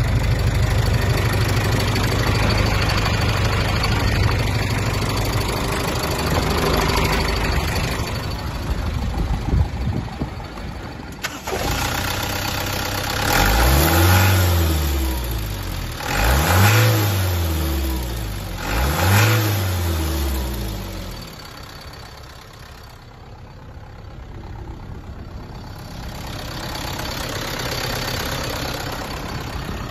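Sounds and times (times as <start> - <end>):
diesel engine revving and idling: 0.0 - 29.9.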